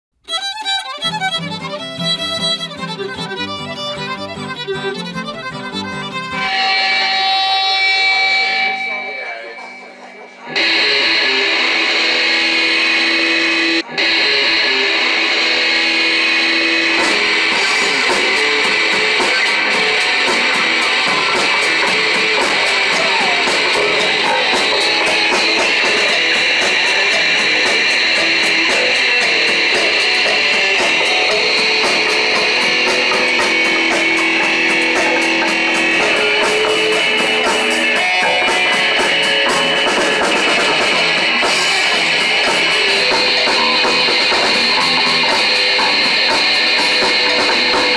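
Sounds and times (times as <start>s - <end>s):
electric guitar: 0.2s - 47.9s
bass guitar: 1.0s - 8.8s, 10.5s - 47.9s
cymbal beat: 6.3s - 47.9s
drum kit: 10.6s - 47.9s.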